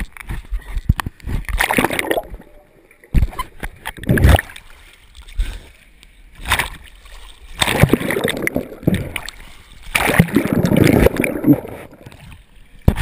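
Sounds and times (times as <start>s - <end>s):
pool water splashing: 1.6s - 4.9s, 6.4s - 12.4s.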